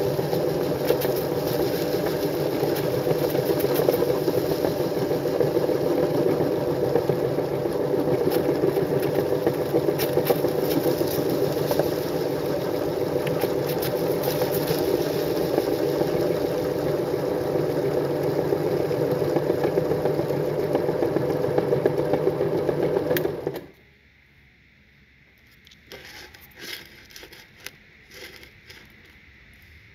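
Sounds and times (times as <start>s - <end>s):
cookie pieces crackling in grinder: 0.0s - 23.6s, 25.7s - 29.2s
meat grinder motor running: 0.0s - 23.7s.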